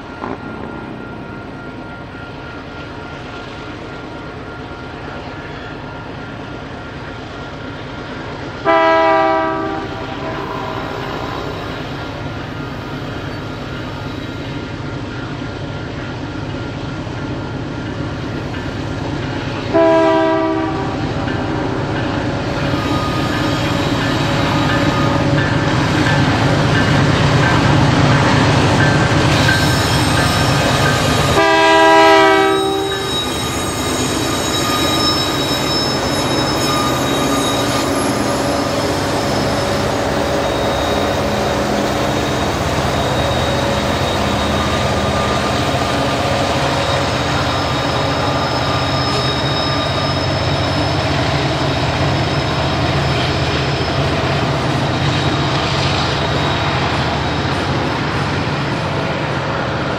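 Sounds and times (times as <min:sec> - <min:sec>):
train rolling past rumbling: 0:00.0 - 0:59.9
locomotive air horn blast: 0:08.6 - 0:11.6, 0:19.7 - 0:21.0, 0:31.4 - 0:33.1
wheels squealing: 0:32.5 - 0:58.2.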